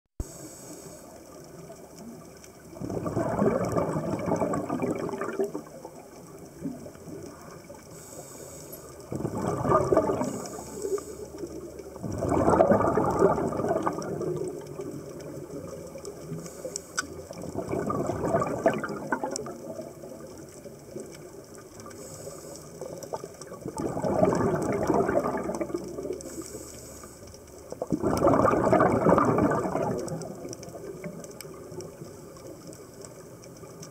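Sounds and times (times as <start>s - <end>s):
quiet steady hiss: 0.2s - 33.9s
diver's breath bubbling: 2.8s - 5.8s, 8.0s - 14.8s, 17.3s - 20.2s, 22.0s - 27.0s, 27.8s - 31.1s.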